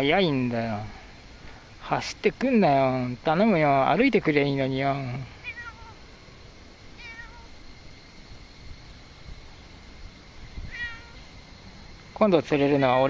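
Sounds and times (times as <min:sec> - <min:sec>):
kitten meowing: 0:05.4 - 0:06.0, 0:07.0 - 0:07.5, 0:10.7 - 0:11.2, 0:12.6 - 0:13.0.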